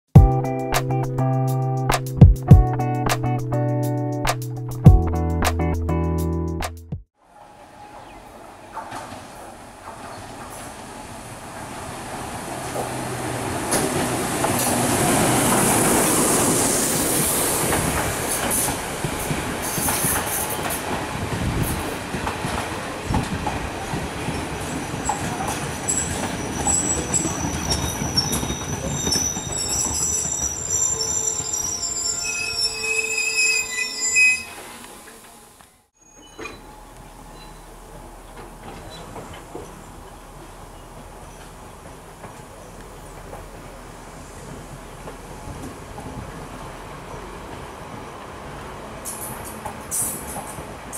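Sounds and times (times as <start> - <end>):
train engines rumbling: 7.3 - 35.5, 36.1 - 50.9
wheels clattering on rails: 12.6 - 31.6, 44.4 - 50.9
high-pitched wheel and brake squeal: 25.9 - 35.4, 36.0 - 37.6.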